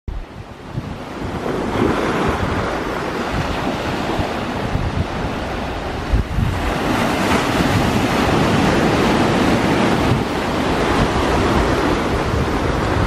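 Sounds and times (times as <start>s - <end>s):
wind buffeting microphone: 0.1s - 13.0s.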